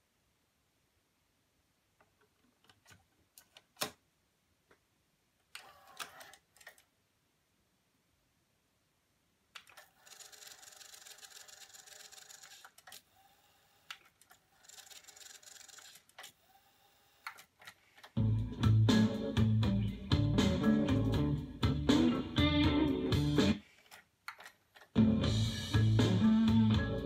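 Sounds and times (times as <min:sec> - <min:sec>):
guitar music from tape: 0:18.2 - 0:23.6, 0:25.0 - 0:27.0.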